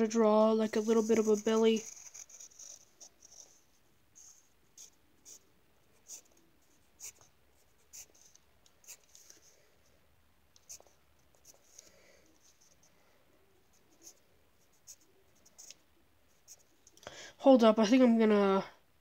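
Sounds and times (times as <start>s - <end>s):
pencil scratching on paper: 0.6s - 9.5s, 10.6s - 11.8s.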